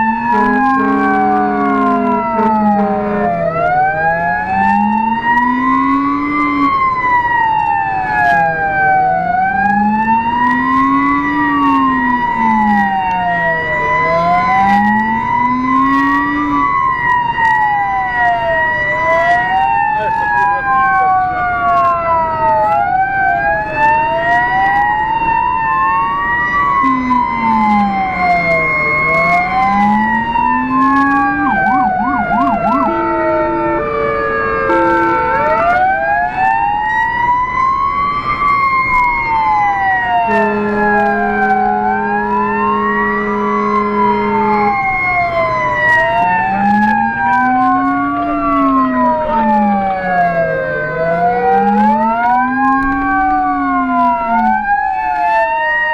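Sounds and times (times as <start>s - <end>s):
fire engine siren wailing: 0.0s - 55.9s
steady horn blast: 0.2s - 3.6s, 26.8s - 36.0s, 40.1s - 45.2s.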